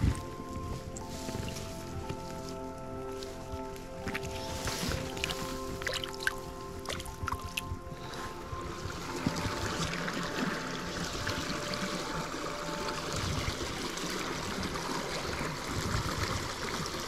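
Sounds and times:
stream running over rocks: 0.0s - 17.0s.

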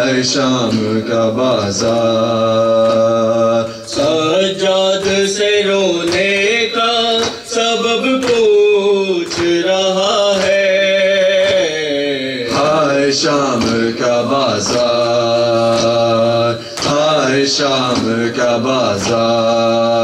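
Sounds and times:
man chanting a lament: 0.0s - 20.0s
chest-beating slaps: 1.9s - 9.8s, 12.5s - 19.5s.

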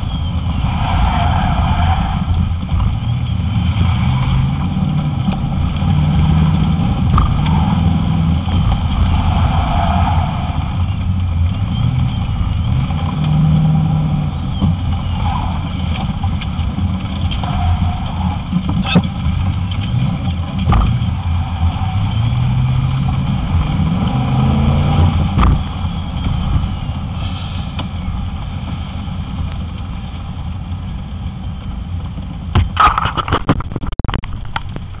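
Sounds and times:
car engine accelerating: 0.0s - 35.0s
sharp clicks and knocks: 6.6s - 7.6s, 15.8s - 21.2s, 25.0s - 26.7s, 32.5s - 35.0s.

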